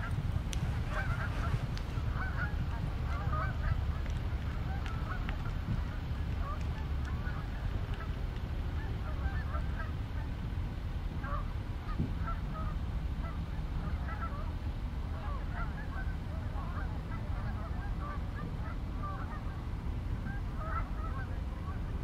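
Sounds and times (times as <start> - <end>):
geese honking: 0.0 - 10.4, 11.2 - 22.0
steady low rumble: 0.0 - 22.0.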